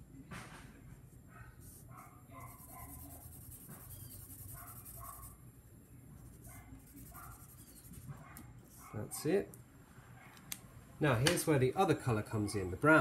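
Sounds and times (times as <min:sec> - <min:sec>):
felt-tip pen scribbling on paper: 0:01.6 - 0:05.4, 0:06.2 - 0:08.9.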